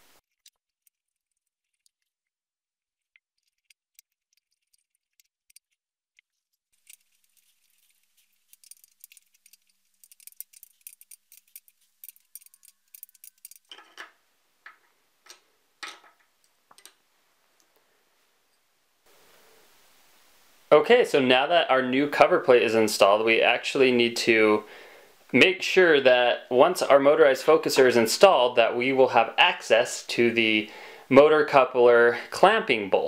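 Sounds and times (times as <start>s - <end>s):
screwdriver clicking on metal bolts: 8.5s - 14.0s.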